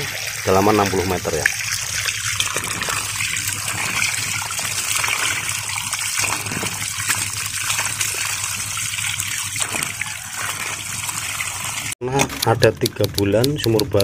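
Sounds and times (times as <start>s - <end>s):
water gushing onto muddy ground: 0.0s - 12.0s.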